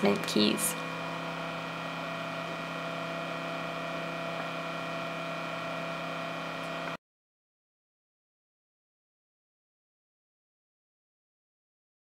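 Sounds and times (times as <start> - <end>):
cooling fan humming: 0.0 - 7.0.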